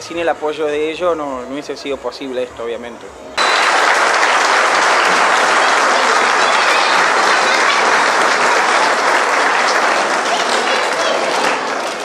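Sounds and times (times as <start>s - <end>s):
audience applauding: 3.4s - 12.0s.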